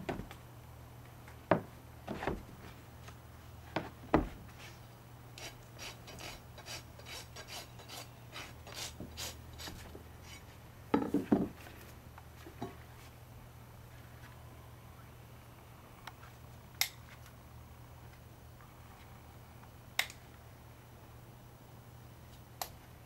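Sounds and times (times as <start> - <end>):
hoof rasp filing: 5.4 - 10.5.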